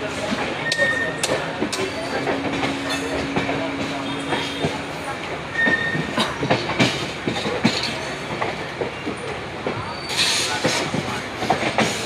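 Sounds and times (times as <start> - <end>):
train running rumble: 0.0 - 12.0
train wheels clattering over rail joints: 0.0 - 12.0.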